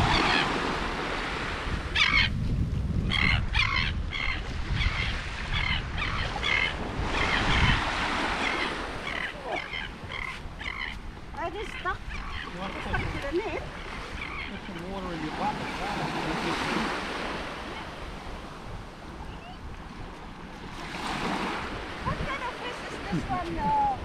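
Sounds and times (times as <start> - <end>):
small waves washing: 0.0 - 2.2, 4.5 - 24.0
gulls calling: 0.0 - 2.3, 3.0 - 24.0
wind rumble on microphone: 0.0 - 8.4, 18.0 - 24.0.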